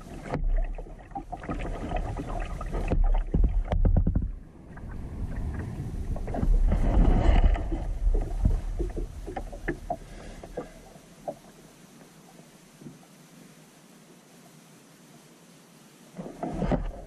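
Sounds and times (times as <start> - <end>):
paddle splashing water: 0.0 - 13.0, 16.1 - 17.0
low rumble: 2.0 - 9.9
small knocks: 2.9 - 4.4.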